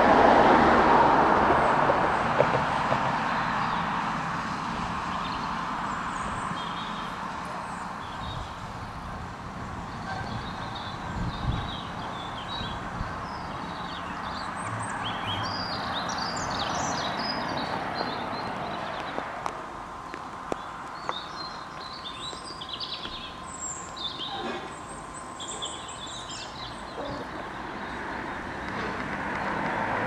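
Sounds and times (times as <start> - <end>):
outdoor background noise: 0.0 - 30.0
small birds chirping: 4.5 - 19.3, 20.0 - 29.0.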